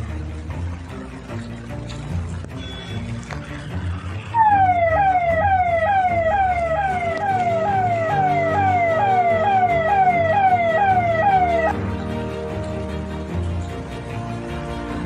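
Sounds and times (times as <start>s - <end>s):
background music: 0.0s - 15.0s
electronic siren: 4.3s - 11.8s.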